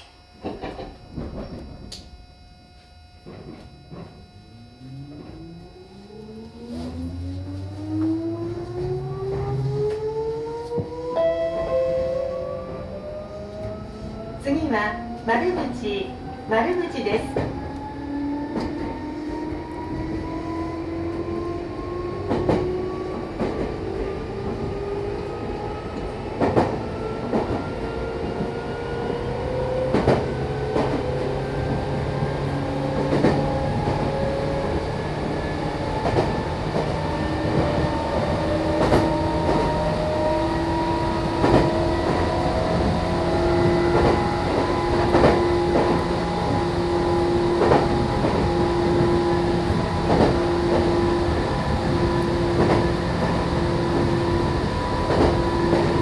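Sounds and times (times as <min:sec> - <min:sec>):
electric train motor whine: 0:00.0 - 0:56.0.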